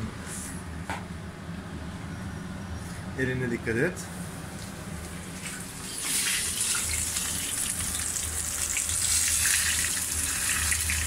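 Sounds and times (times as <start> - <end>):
fish sizzling in oil: 5.8 - 11.0.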